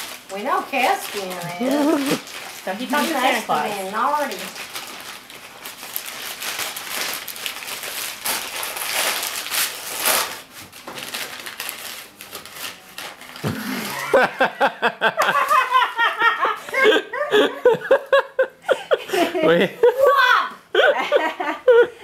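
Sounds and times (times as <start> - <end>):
wrapping paper crinkling: 0.0 - 14.2, 15.3 - 16.3
person speaking: 1.1 - 4.5.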